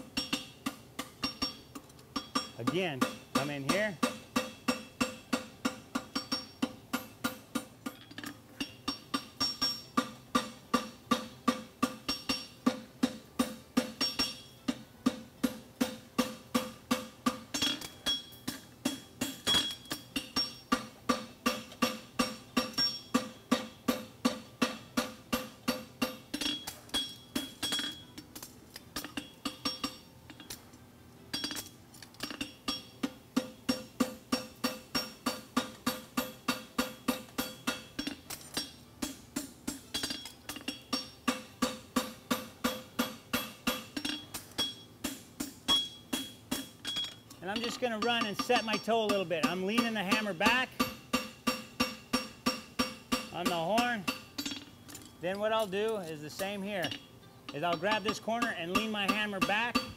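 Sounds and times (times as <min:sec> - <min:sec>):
hammer striking horseshoe on anvil: 0:00.0 - 0:30.6, 0:31.3 - 0:59.9.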